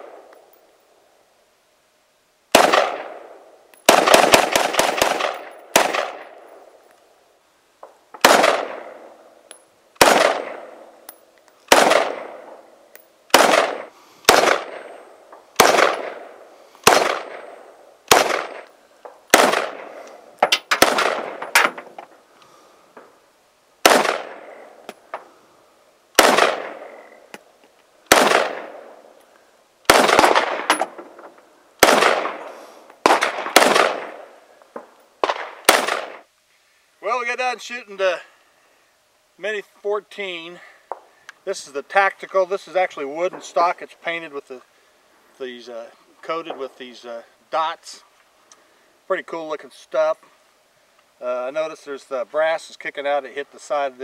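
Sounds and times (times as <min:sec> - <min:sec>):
rifle shots with echo: 0:02.5 - 0:06.6, 0:08.2 - 0:09.2, 0:10.0 - 0:11.0, 0:11.7 - 0:12.7, 0:13.3 - 0:18.7, 0:19.3 - 0:21.8, 0:23.8 - 0:24.8, 0:26.2 - 0:27.2, 0:28.1 - 0:29.0, 0:29.9 - 0:31.0, 0:31.8 - 0:34.4, 0:35.2 - 0:36.3.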